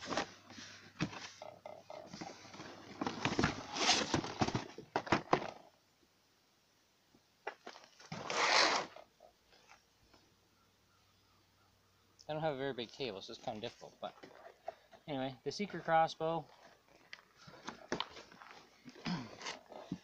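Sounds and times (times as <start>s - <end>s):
cardboard rustling and scraping: 0.0s - 5.6s, 7.6s - 9.1s, 15.7s - 20.0s
box scraping on table: 2.2s - 4.6s, 8.1s - 9.0s.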